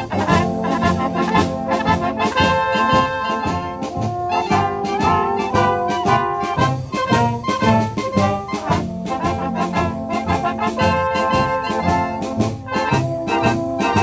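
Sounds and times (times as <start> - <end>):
brass band playing: 0.0 - 14.0.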